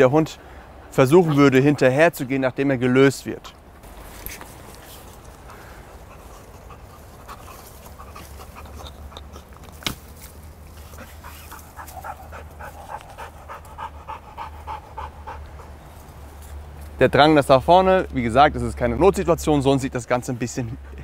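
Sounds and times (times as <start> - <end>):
dog panting: 5.3 - 9.6, 10.8 - 15.9, 20.4 - 21.0.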